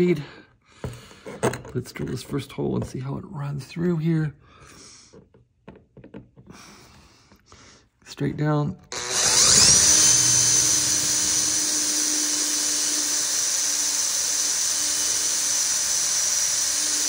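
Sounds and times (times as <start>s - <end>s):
cordless drill whining: 8.9s - 17.0s.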